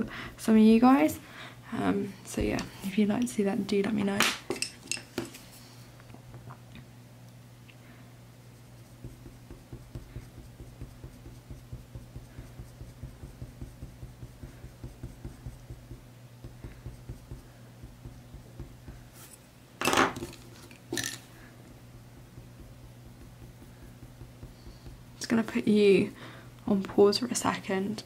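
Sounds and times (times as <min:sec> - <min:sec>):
pencil scratching on paper: 0:08.6 - 0:19.4, 0:22.1 - 0:25.1
pencils clattering: 0:19.8 - 0:21.3.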